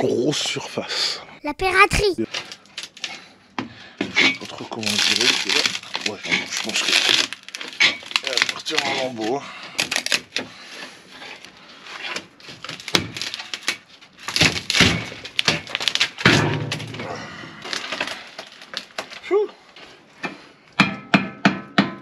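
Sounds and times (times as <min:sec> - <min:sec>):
wooden boards cracking and splintering: 0:04.4 - 0:10.6, 0:12.1 - 0:19.3.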